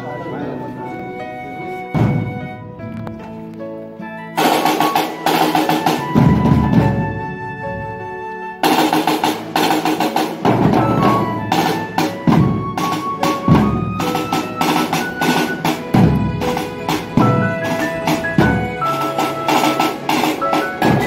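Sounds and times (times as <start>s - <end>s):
marching drums: 1.9s - 2.8s, 4.4s - 7.8s, 8.6s - 21.0s
melody over drumming: 1.9s - 3.0s, 4.4s - 7.4s, 8.6s - 21.0s.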